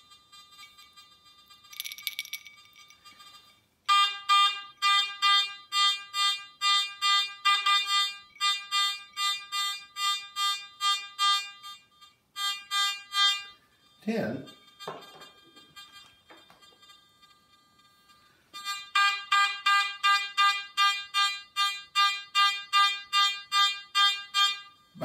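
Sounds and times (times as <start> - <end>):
metal detector short beeps: 0.3 - 4.0, 12.4 - 25.0
bell jingling: 1.7 - 3.1.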